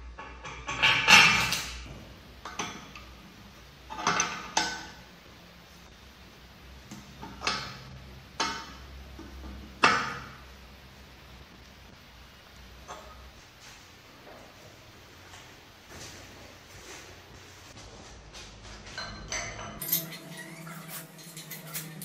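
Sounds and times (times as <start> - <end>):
wrench clinking on metal: 19.0 - 20.6.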